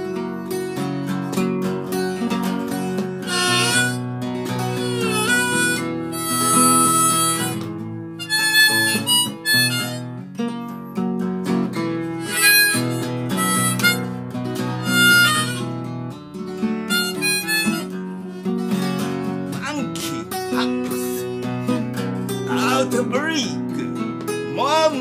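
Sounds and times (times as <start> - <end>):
strummed acoustic guitar chords: 0.0 - 25.0
harmonica solo: 2.7 - 10.3, 12.1 - 15.9, 16.8 - 23.0.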